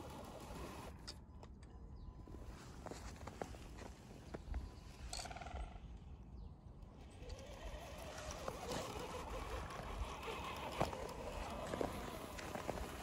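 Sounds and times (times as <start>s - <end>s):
toy car motor whirring: 0.0s - 1.0s, 7.0s - 13.0s
snow crunching: 7.9s - 13.0s.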